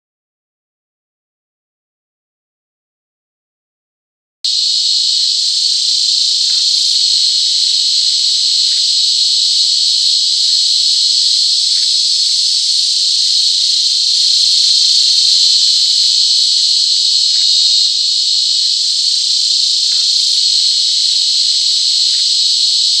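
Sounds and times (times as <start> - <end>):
cicadas buzzing: 4.5 - 23.0.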